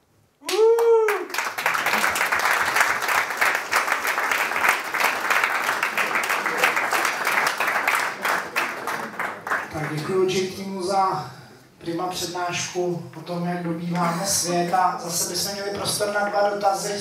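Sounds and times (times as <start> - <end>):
audience applauding: 0.4 - 10.1.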